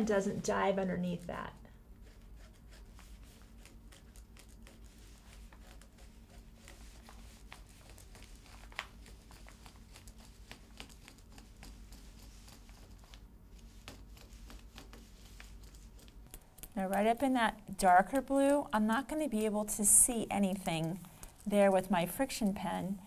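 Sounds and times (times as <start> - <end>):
paper rustling: 2.7 - 17.1.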